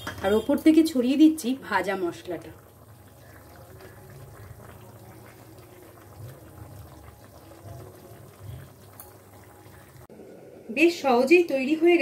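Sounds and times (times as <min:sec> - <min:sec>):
curry bubbling in a pan: 0:00.0 - 0:10.1.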